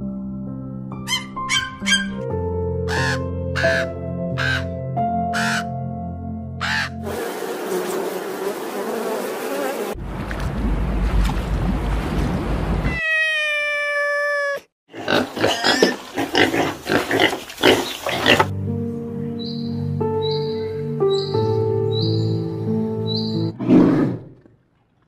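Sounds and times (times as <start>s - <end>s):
long steady animal call: 2.9s - 4.7s
short harsh animal calls: 2.9s - 4.7s.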